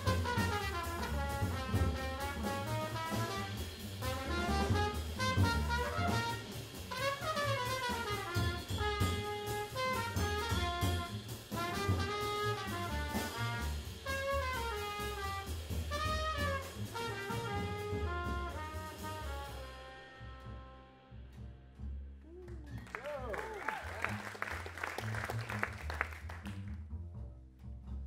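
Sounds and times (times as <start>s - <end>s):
drum kit: 0.0s - 20.2s, 22.8s - 26.6s
saxophone: 0.0s - 21.2s
trombone: 0.0s - 21.4s
trumpet: 0.0s - 21.4s
double bass: 0.0s - 28.0s.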